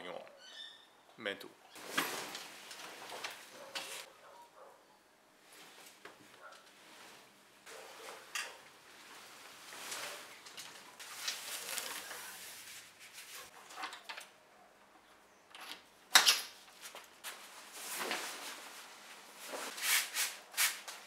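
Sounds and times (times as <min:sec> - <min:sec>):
tent canvas rustling: 0:01.8 - 0:04.1, 0:05.4 - 0:13.6, 0:17.2 - 0:20.2.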